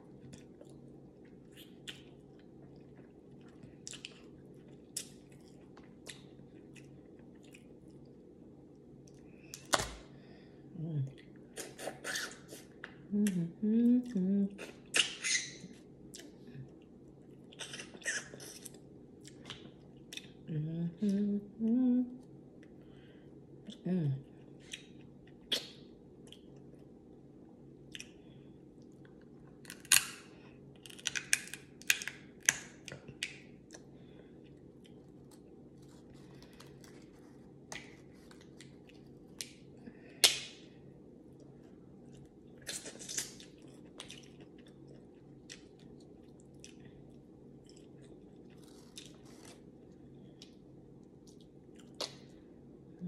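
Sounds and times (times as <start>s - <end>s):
low steady hum: 0.0s - 53.0s
wet chewing and lip smacking: 0.2s - 8.1s, 27.9s - 28.2s, 42.0s - 49.5s
person humming: 13.1s - 14.8s, 20.5s - 22.2s, 23.7s - 24.3s
shellfish shells cracking: 30.8s - 33.4s.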